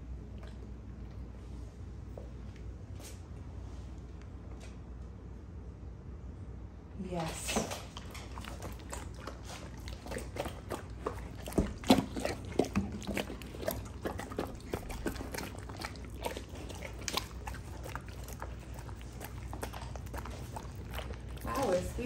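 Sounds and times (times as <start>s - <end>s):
dogs chewing and licking: 0.0s - 2.7s, 7.1s - 22.0s.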